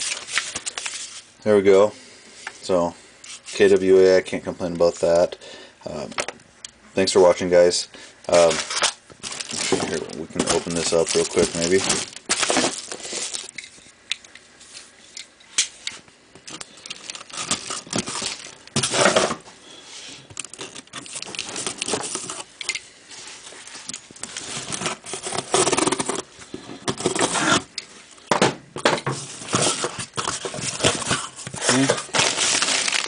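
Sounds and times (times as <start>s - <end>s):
cardboard flaps tearing open: 9.2s - 13.5s, 31.6s - 33.0s.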